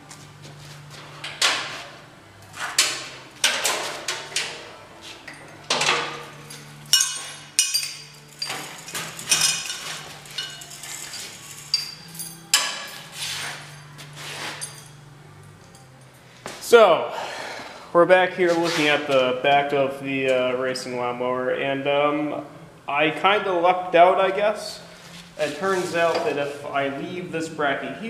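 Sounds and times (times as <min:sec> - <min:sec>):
chain rattling: 0:06.3 - 0:16.1.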